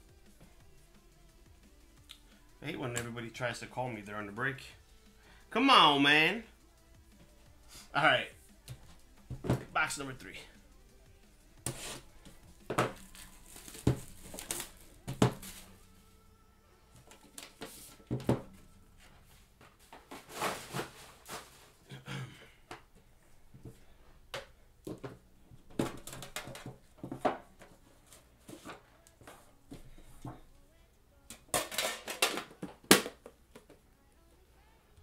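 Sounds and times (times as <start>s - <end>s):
plastic wrap crinkling and tearing: 13.0s - 14.9s.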